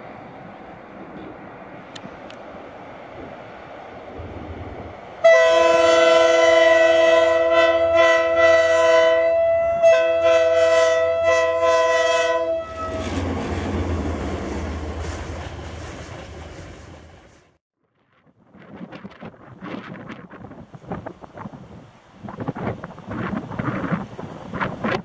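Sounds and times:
train rumbling and rattling past: 0.0s - 17.6s, 18.5s - 25.0s
locomotive horn blast: 5.2s - 13.1s.

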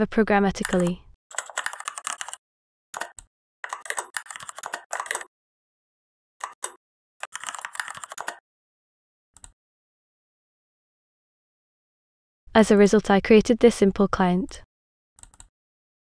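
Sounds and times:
keyboard typing: 0.5s - 2.4s, 3.0s - 5.3s, 6.4s - 8.4s, 15.2s - 15.5s.

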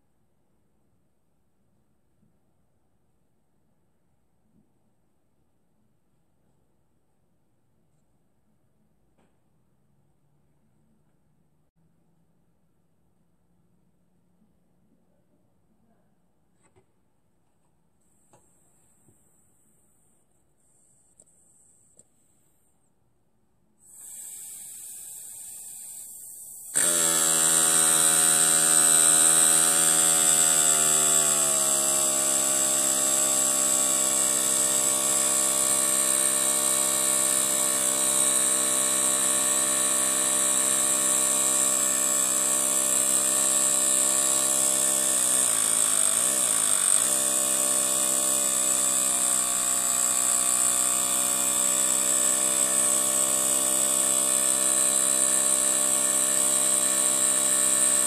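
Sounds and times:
air hiss: 23.8s - 26.8s
small steam engine whining: 23.9s - 58.0s.

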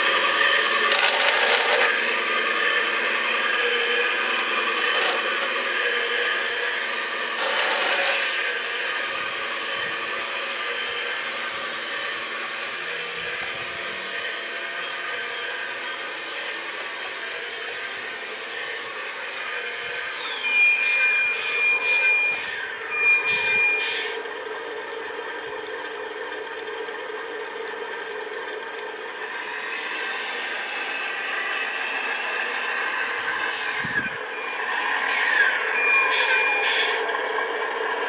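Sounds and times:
model truck motor hum: 0.0s - 34.5s
high beeps with falling sweeps: 20.1s - 24.2s.

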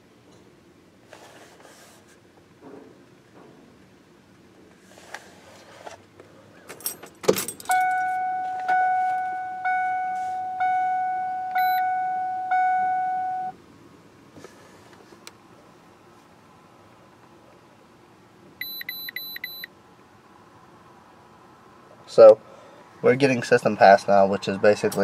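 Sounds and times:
keys jangling: 6.7s - 8.0s
truck warning chime: 7.7s - 13.6s, 18.6s - 19.7s.

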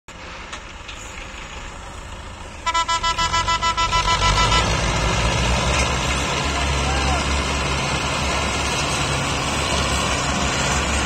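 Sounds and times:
tractor diesel engines under load: 0.1s - 11.0s
horn sounding in rapid pulses: 2.6s - 4.9s.

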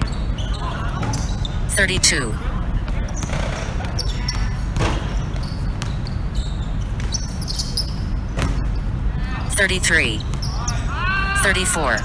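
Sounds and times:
basketball bouncing on hard court: 2.9s - 6.2s, 6.8s - 7.4s.

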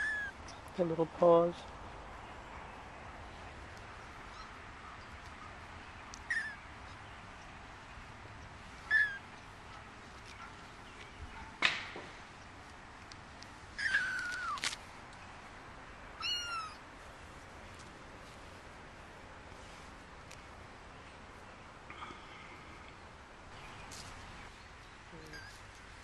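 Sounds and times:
kittens mewing: 13.8s - 14.6s, 16.2s - 16.8s.

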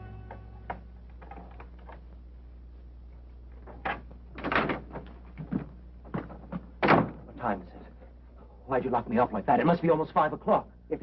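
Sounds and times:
low film soundtrack hum: 0.0s - 11.0s
door knocks and rattles: 3.8s - 7.2s.

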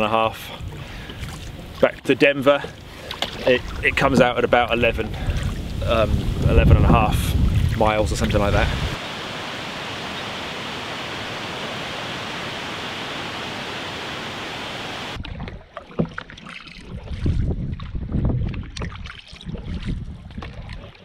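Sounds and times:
rush of wind and water: 0.0s - 21.0s
water lapping against canoe hull: 0.4s - 21.0s
wind buffeting microphone: 3.5s - 15.2s, 16.9s - 20.9s.

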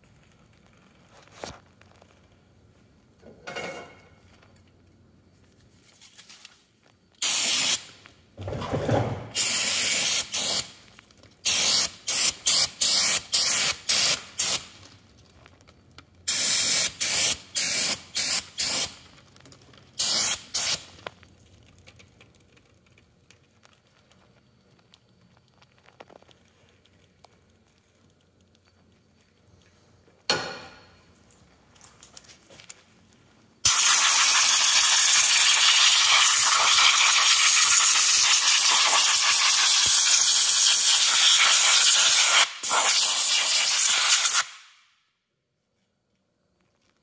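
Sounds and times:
aerosol spray hissing: 7.2s - 8.0s, 9.3s - 10.8s, 11.4s - 14.7s, 16.3s - 19.0s, 20.0s - 20.9s, 33.6s - 44.6s.

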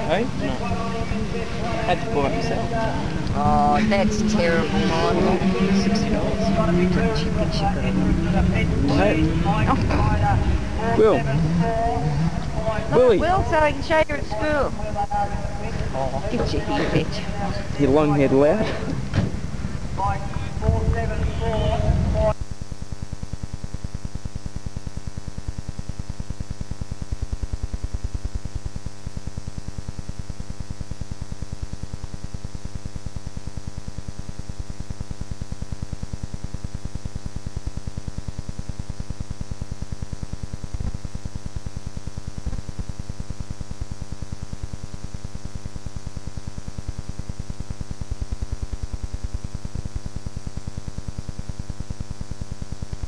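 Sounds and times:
pulsing electrical hum and buzz: 0.0s - 53.0s.

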